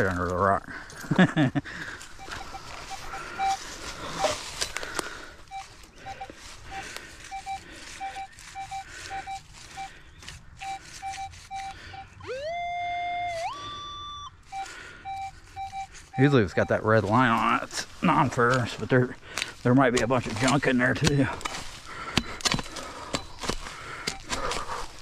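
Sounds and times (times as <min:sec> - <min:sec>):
leaves rustling: 0:01.8 - 0:11.9, 0:13.2 - 0:22.1
metal detector beeps: 0:02.1 - 0:19.1, 0:19.7 - 0:24.8
metal detector rising tone: 0:02.2 - 0:04.4, 0:10.6 - 0:17.6.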